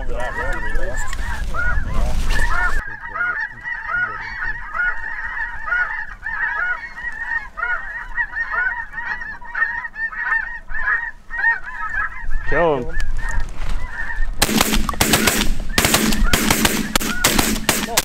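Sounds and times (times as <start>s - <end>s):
wind rumble on microphone: 0.0s - 2.8s
snow geese honking: 0.0s - 18.0s.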